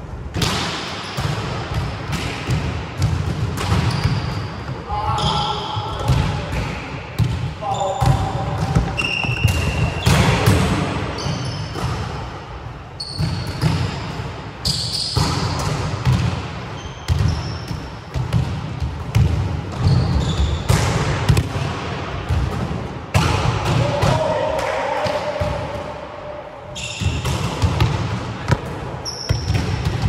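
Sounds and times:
court shoes squeaking: 0:03.0 - 0:12.2, 0:13.0 - 0:18.3, 0:19.7 - 0:20.8, 0:26.7 - 0:30.0.

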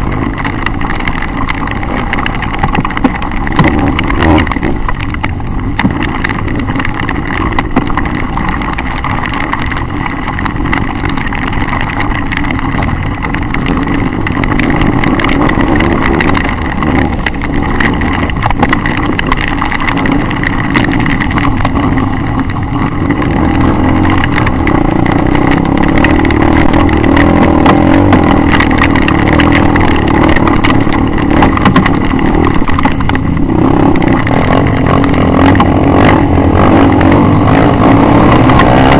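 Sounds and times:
rattling and knocking from bumps: 0:00.0 - 0:38.9
dirt bike engine revving: 0:11.9 - 0:38.9.

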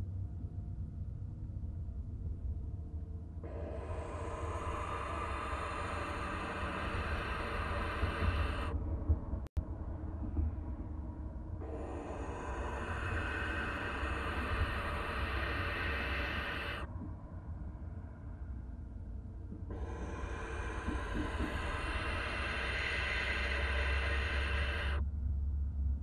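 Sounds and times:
low hum: 0:00.0 - 0:26.0
owlet hissing call: 0:03.5 - 0:08.8, 0:11.6 - 0:16.9, 0:19.7 - 0:25.0.

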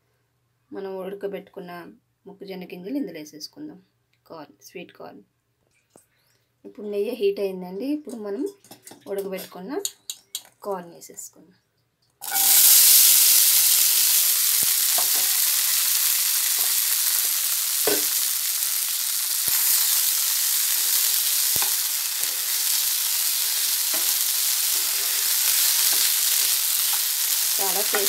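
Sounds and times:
corn sizzling in a frying pan: 0:12.2 - 0:28.0.

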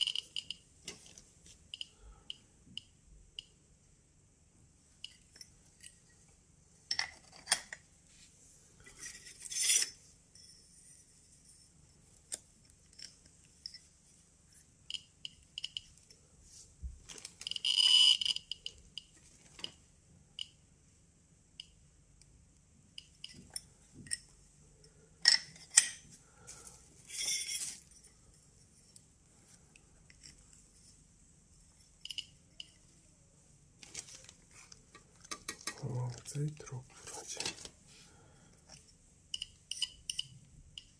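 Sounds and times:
geiger counter clicking: 0:00.0 - 0:00.7, 0:14.9 - 0:16.0, 0:17.5 - 0:19.2, 0:39.3 - 0:40.9.

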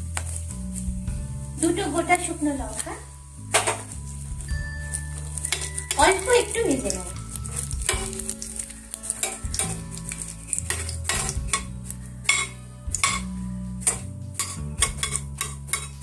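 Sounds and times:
faint sizzle: 0:00.0 - 0:16.0
metal spatula scraping frying pan: 0:03.4 - 0:16.0.

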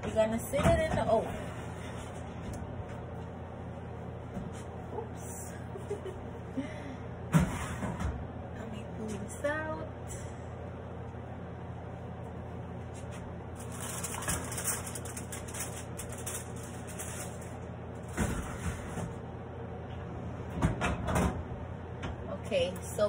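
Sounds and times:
steady low hum: 0:00.0 - 0:23.0
oven door and rack clatter: 0:13.6 - 0:19.2, 0:20.4 - 0:22.2.

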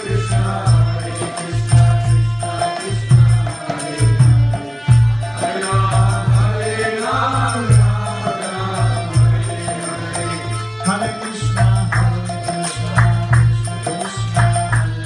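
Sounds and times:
group chanting: 0:00.0 - 0:10.7.

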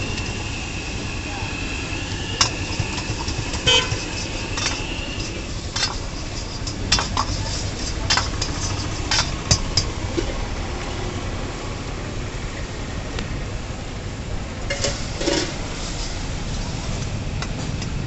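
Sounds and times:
metal ladle scraping a wok: 0:00.0 - 0:10.3, 0:14.7 - 0:16.8
sizzling: 0:00.0 - 0:11.1, 0:14.6 - 0:18.0.

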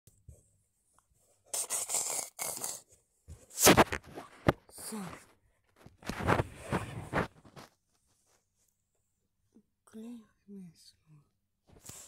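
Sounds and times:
fabric rustling and scraping: 0:03.4 - 0:08.7.

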